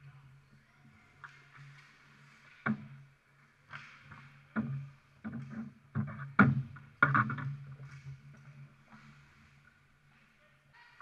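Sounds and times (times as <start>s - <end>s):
sticks and players banging boards: 3.7s - 9.2s.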